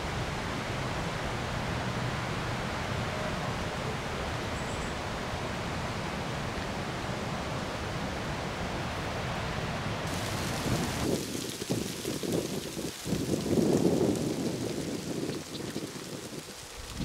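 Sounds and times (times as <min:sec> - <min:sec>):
steady rushing outdoor noise: 0:00.0 - 0:17.0
wind buffeting microphone: 0:10.1 - 0:17.0.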